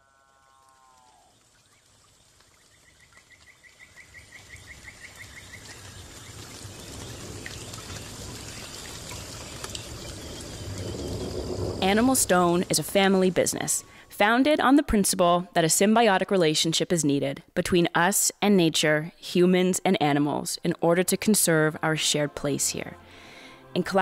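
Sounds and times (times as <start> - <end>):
running water: 0.0 - 14.2.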